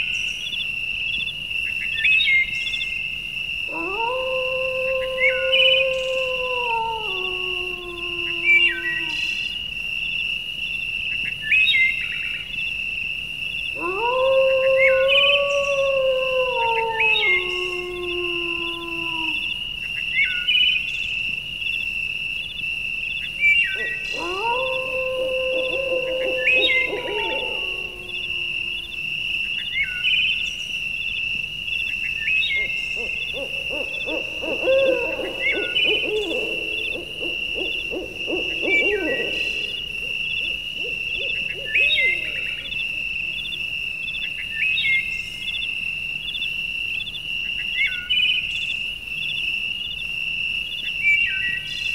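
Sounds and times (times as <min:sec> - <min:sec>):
insects chirping: 0:00.0 - 0:51.9
long low animal calls: 0:03.7 - 0:09.5, 0:13.8 - 0:19.6, 0:23.6 - 0:29.5, 0:32.3 - 0:43.4.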